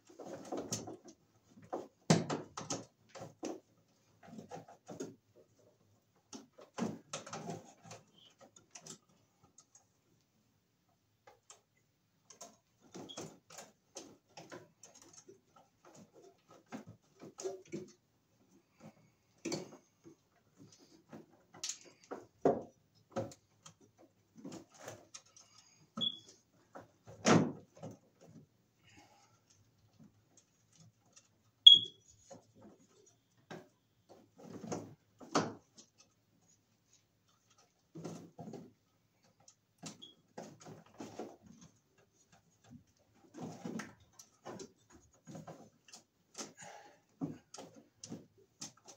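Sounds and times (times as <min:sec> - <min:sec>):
cable handling clicks and rustles: 0:00.0 - 0:10.4, 0:11.1 - 0:48.9
short high chirps: 0:31.7 - 0:32.0.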